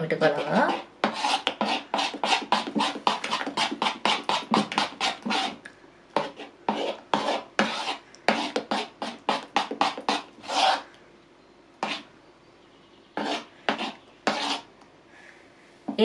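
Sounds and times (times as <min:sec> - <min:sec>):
spoon stirring batter in bowl: 0:00.0 - 0:10.9, 0:11.8 - 0:12.1, 0:13.1 - 0:14.7.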